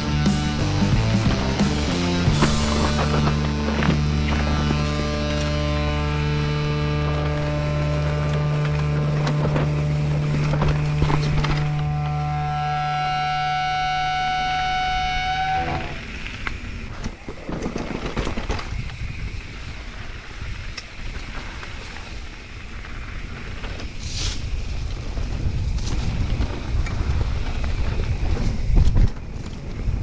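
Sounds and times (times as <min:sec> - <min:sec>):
bike rattling over stony trail: 0:00.0 - 0:14.8, 0:15.8 - 0:30.0
held musical chord: 0:00.0 - 0:16.0
wind buffeting microphone: 0:13.8 - 0:30.0.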